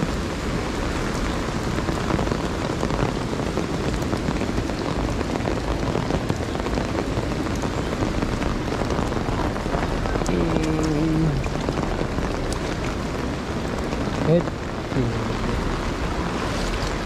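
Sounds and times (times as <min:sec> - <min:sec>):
raindrops ticking: 0:00.0 - 0:17.0
steady rain falling: 0:00.0 - 0:17.0.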